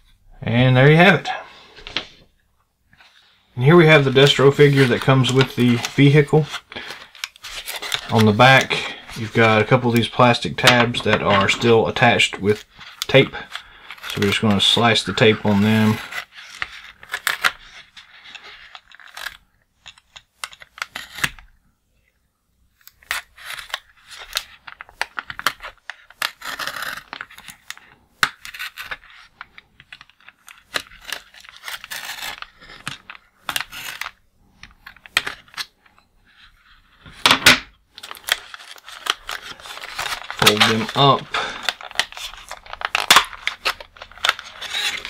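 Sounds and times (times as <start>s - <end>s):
knife scraping packaging: 4.0s - 21.4s, 22.8s - 35.7s, 38.0s - 45.0s
packaging crackle: 37.9s - 45.0s.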